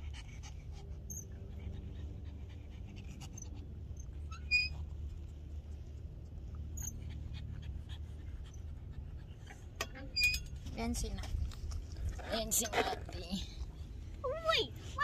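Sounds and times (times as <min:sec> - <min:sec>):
dog panting: 0:00.0 - 0:05.8, 0:06.6 - 0:09.8
short high squeak: 0:04.3 - 0:04.8.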